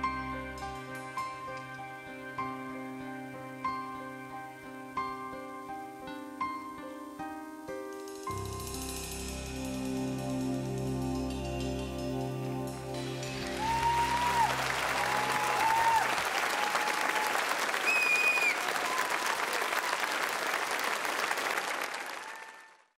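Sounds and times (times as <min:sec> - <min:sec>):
held music chord: 0:08.3 - 0:15.0
audience applauding and cheering: 0:13.0 - 0:23.0
high whistle: 0:13.4 - 0:19.5.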